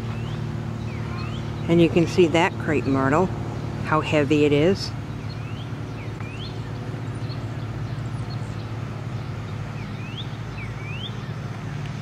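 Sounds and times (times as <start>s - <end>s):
low mechanical hum: 0.0s - 12.0s
bird whistling: 0.1s - 1.8s, 5.2s - 8.6s, 9.8s - 11.4s.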